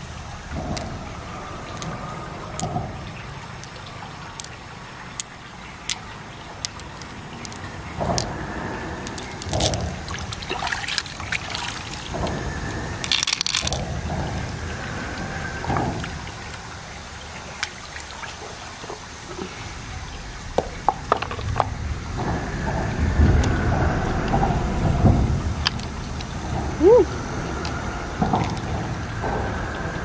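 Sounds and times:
shells clicking: 0:13.0 - 0:13.8.

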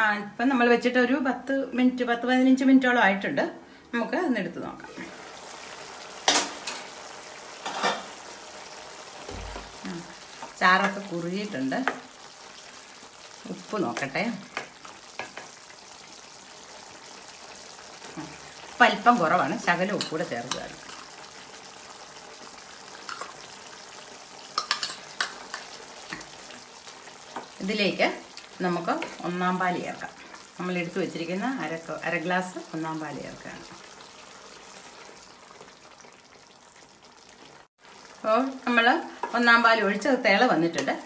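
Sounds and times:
curry sizzling in a pan: 0:04.7 - 0:41.0
spatula scraping and clicking on pan: 0:14.0 - 0:15.6, 0:24.5 - 0:27.6.

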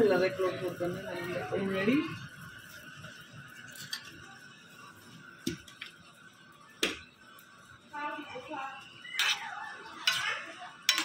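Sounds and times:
faint background music: 0:00.0 - 0:11.0
metal spoon clinking cookware: 0:03.6 - 0:04.2, 0:09.1 - 0:11.0.

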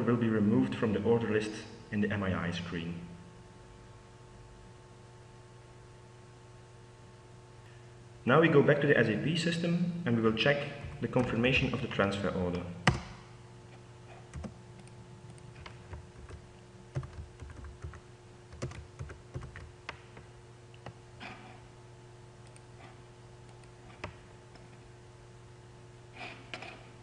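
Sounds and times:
faint steady hum: 0:00.0 - 0:27.0
keyboard typing: 0:14.2 - 0:20.3.

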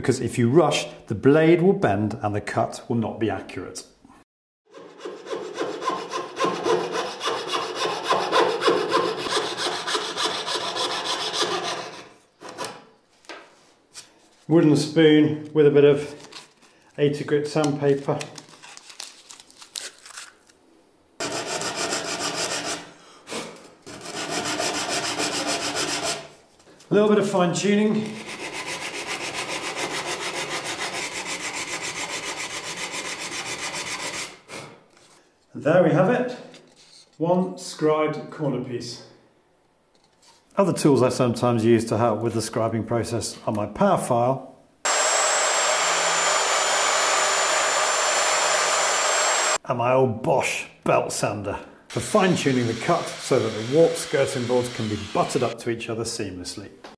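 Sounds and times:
coping saw cutting wood: 0:04.7 - 0:12.8, 0:21.2 - 0:26.3, 0:28.0 - 0:34.4, 0:44.9 - 0:49.6, 0:51.9 - 0:55.6
sandpaper rasping on wood: 0:04.8 - 0:12.1, 0:23.9 - 0:26.3, 0:28.0 - 0:34.4.

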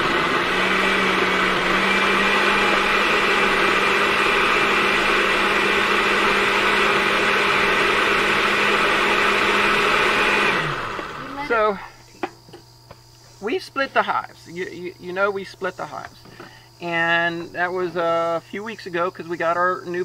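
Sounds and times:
blender running: 0:00.0 - 0:11.8.

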